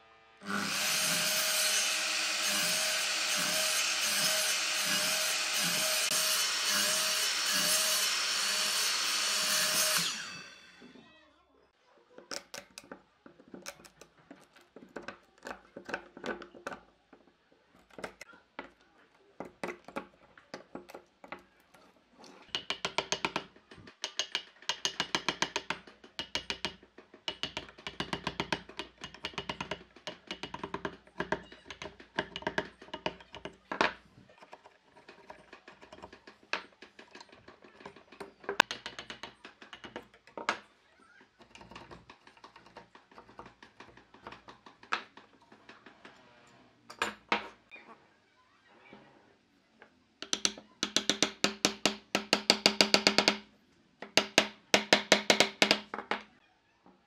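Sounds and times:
chisel tapping into wood: 22.4s - 34.0s, 35.0s - 40.6s, 50.2s - 56.3s.

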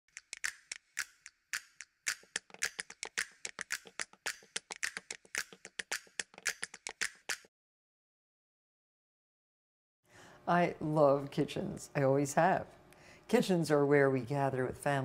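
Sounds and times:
rhythmic sharp clicks and taps: 0.1s - 7.5s.

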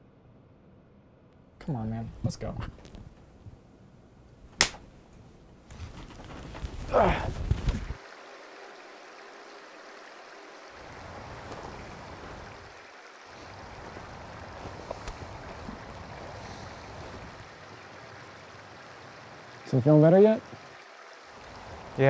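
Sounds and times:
river water rushing: 8.0s - 22.0s.

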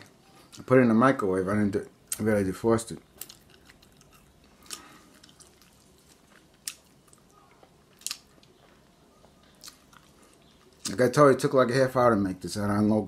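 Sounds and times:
person chewing: 3.1s - 11.0s.

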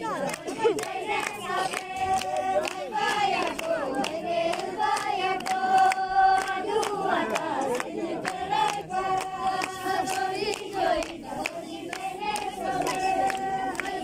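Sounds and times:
crowd chanting long notes: 0.0s - 14.0s
rhythmic hand clapping: 0.0s - 14.0s.

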